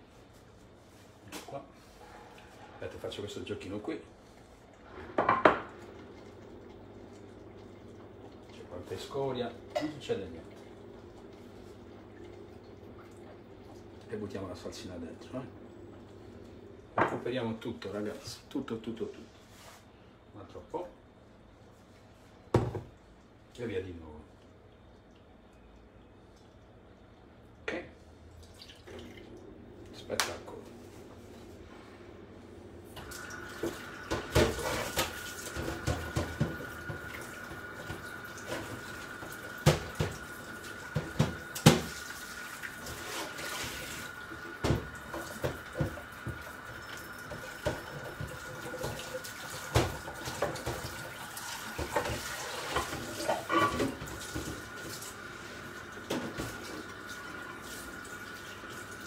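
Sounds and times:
tap water running into sink: 0:32.9 - 0:59.0.

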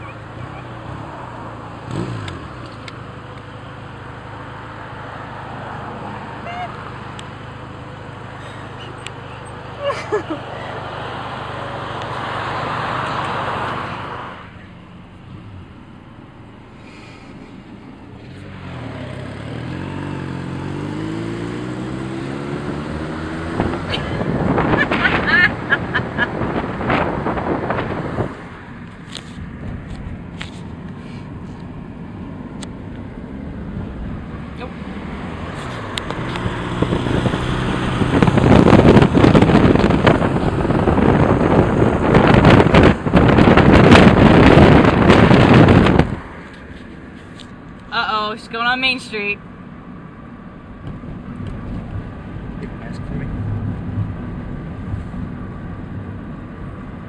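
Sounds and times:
vehicle engine accelerating: 0:00.0 - 0:57.0
wind buffeting microphone: 0:23.1 - 0:31.4, 0:33.2 - 0:47.3.

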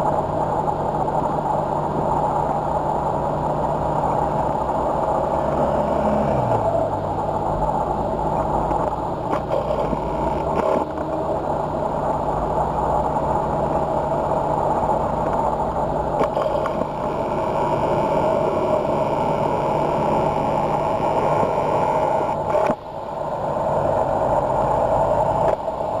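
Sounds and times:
heavy lorry engines running: 0:00.0 - 0:26.0.

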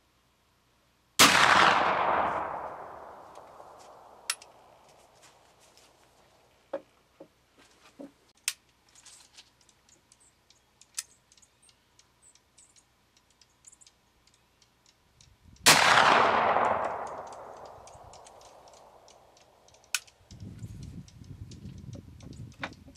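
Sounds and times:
rifle shot with echo: 0:01.2 - 0:04.7, 0:15.6 - 0:19.3.

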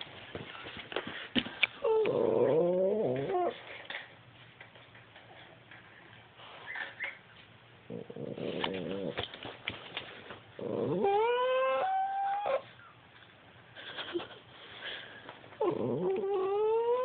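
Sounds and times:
dog grumbling: 0:01.8 - 0:03.6, 0:07.9 - 0:09.2, 0:10.6 - 0:12.6, 0:15.6 - 0:17.0
dog howling whine: 0:01.8 - 0:03.6, 0:10.6 - 0:12.8, 0:15.6 - 0:17.0.

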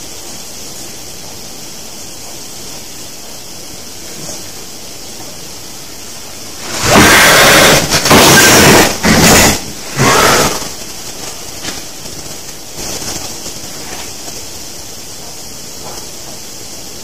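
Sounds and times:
steady hiss: 0:00.0 - 0:17.0
harsh noise bursts: 0:03.5 - 0:15.8.

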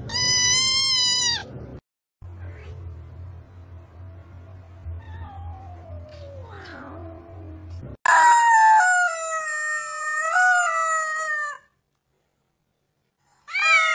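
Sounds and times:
rubber chicken toy squawk: 0:00.0 - 0:01.5
faint low hum: 0:00.1 - 0:08.0.

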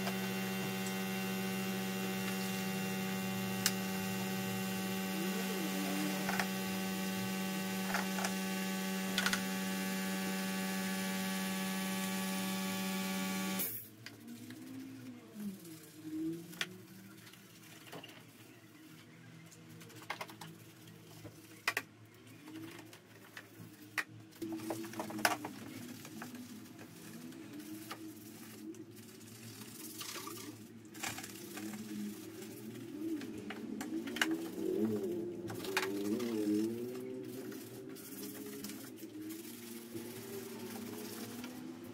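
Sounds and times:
electric hum: 0:00.0 - 0:13.9
bristle brush scrubbing: 0:24.4 - 0:41.9.

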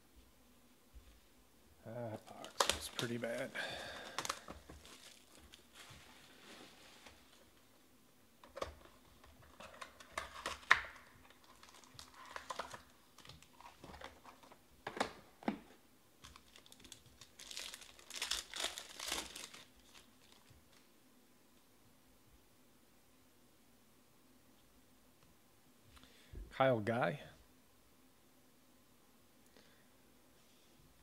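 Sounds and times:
wrapped card pack crinkling: 0:02.1 - 0:07.5, 0:08.5 - 0:14.6, 0:16.2 - 0:20.9.

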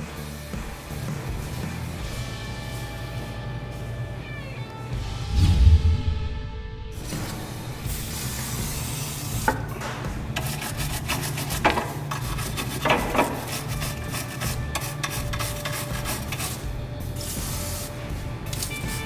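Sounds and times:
wire brush scrubbing metal: 0:10.3 - 0:19.0.

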